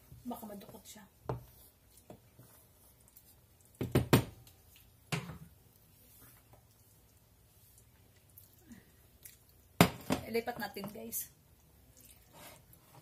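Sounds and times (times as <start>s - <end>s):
wooden spoon knocking on skillet: 0.6s - 1.5s, 3.8s - 4.4s.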